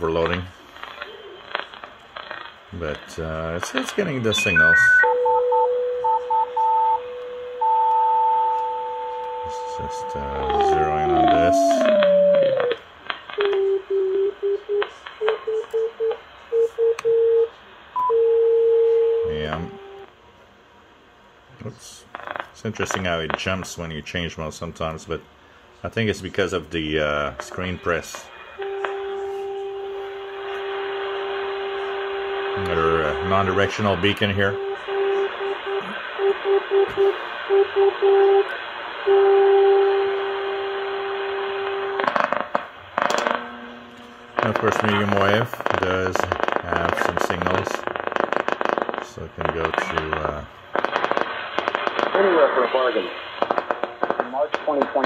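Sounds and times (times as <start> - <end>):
radio crackling: 0.0 - 5.1, 6.0 - 17.0, 19.3 - 20.1, 26.0 - 55.0
static hiss: 0.0 - 5.1, 7.9 - 16.6, 21.5 - 55.0
brief high beep: 4.3 - 5.2
morse code beacon tone: 4.3 - 12.8, 28.6 - 38.5.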